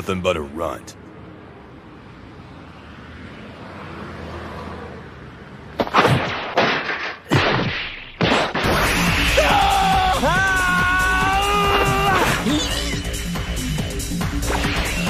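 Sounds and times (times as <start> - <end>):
music: 8.6 - 15.0.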